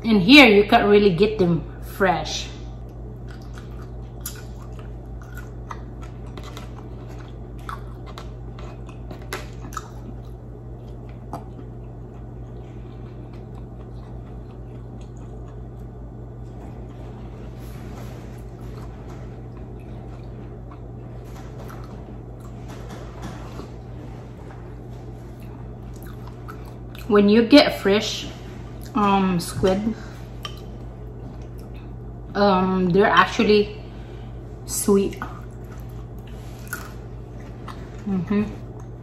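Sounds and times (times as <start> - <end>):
steady low hum: 0.0 - 39.0
person chewing wetly: 2.8 - 17.2, 18.4 - 22.6, 25.1 - 27.1, 30.2 - 32.2, 35.3 - 39.0.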